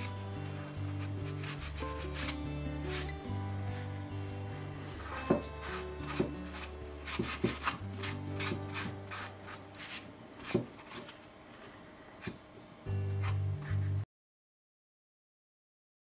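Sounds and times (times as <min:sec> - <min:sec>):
tissue scratching on model wall: 0:00.0 - 0:04.0, 0:04.6 - 0:11.3.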